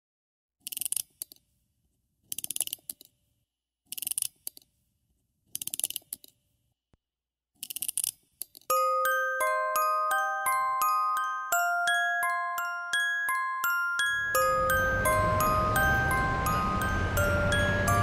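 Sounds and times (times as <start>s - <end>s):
mechanical ratchet clicking: 0.6s - 1.4s, 2.3s - 3.1s, 3.9s - 4.6s, 7.6s - 8.6s.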